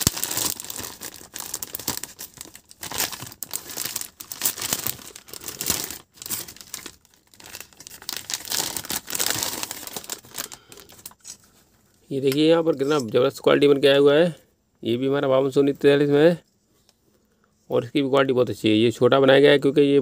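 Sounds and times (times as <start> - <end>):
plastic bag crinkling: 0.0 - 11.4.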